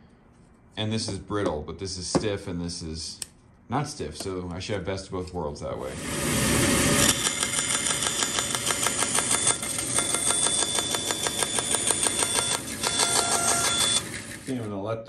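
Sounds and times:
bandsaw cutting board: 0:05.8 - 0:14.7.

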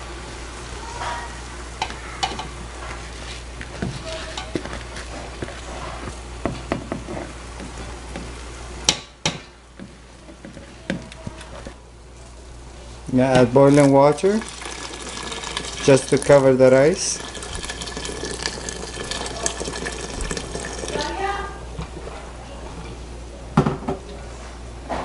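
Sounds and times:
food sizzling in a pot: 0:13.7 - 0:21.3.

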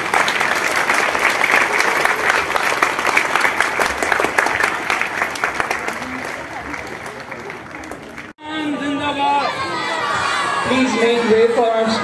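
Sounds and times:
crowd clapping: 0:00.0 - 0:08.4.

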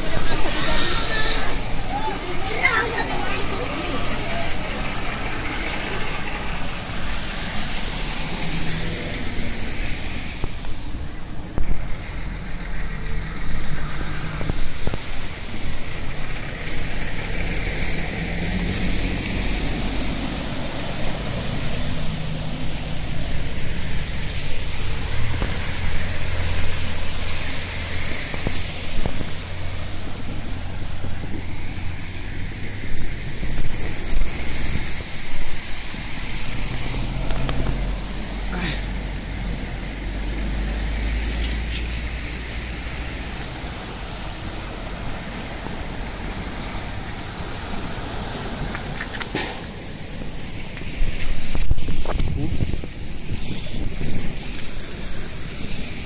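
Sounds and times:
traffic on a flooded road: 0:00.0 - 0:56.0
wind rumble on microphone: 0:41.3 - 0:56.0.

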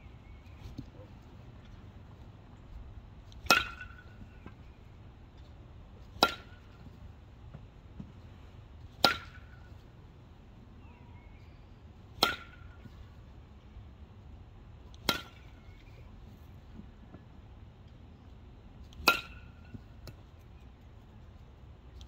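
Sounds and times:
baseball bat cracking ball: 0:03.3 - 0:04.6, 0:06.2 - 0:06.9, 0:09.0 - 0:09.7, 0:12.2 - 0:12.8, 0:14.9 - 0:15.8, 0:18.9 - 0:20.2.

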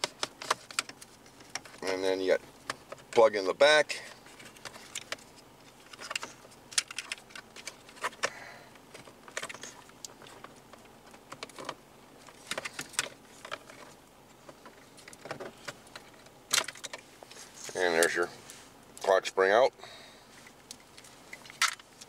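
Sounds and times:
plastic clicks and rattles: 0:05.9 - 0:08.3.

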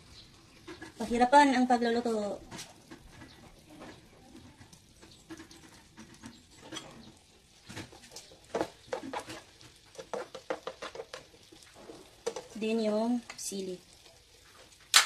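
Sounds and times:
chicken frying in oil: 0:00.0 - 0:15.0
spatula tapping and scraping pan: 0:00.6 - 0:01.6, 0:02.5 - 0:12.6.

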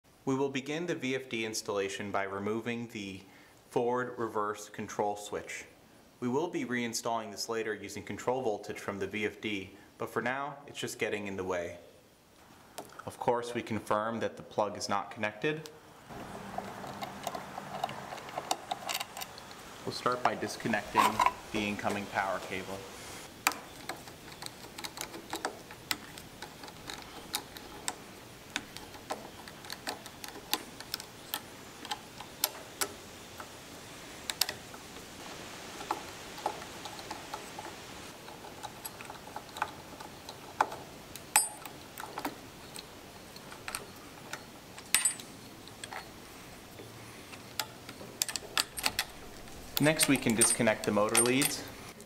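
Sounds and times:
wire lugs clinking: 0:16.1 - 0:22.6, 0:23.5 - 0:33.5, 0:35.7 - 0:46.2, 0:46.8 - 0:52.0
screwdriver metallic clicks: 0:47.6 - 0:51.7.

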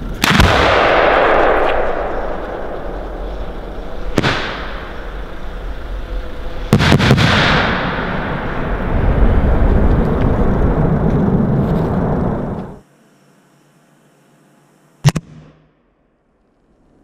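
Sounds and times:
firework shell cracking: 0:00.0 - 0:08.3
firework shell rushing: 0:00.0 - 0:09.0
mortar launch bang: 0:00.2 - 0:02.4, 0:04.1 - 0:04.9, 0:06.7 - 0:08.4
firework salute bangs: 0:04.1 - 0:05.3, 0:06.6 - 0:08.3.

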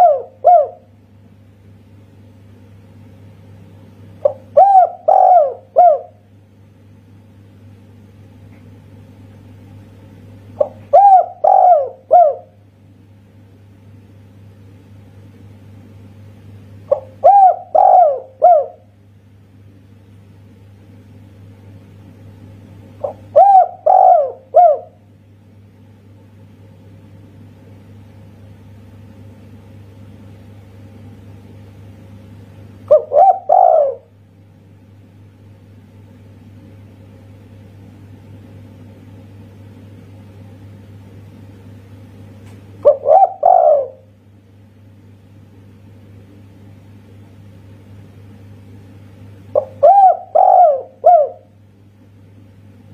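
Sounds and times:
dove cooing: 0:00.0 - 0:00.9, 0:04.2 - 0:06.2, 0:10.6 - 0:12.6, 0:16.9 - 0:18.9, 0:23.0 - 0:25.0, 0:32.9 - 0:34.1, 0:42.8 - 0:44.1, 0:49.5 - 0:51.6
steady low hum: 0:00.0 - 0:52.9.

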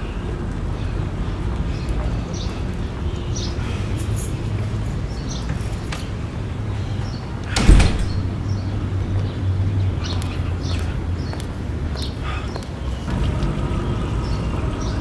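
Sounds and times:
door banging: 0:07.5 - 0:08.7.

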